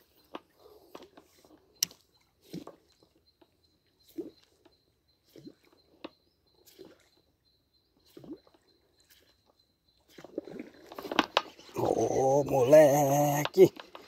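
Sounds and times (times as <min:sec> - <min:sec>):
water splashing: 0:10.0 - 0:14.0.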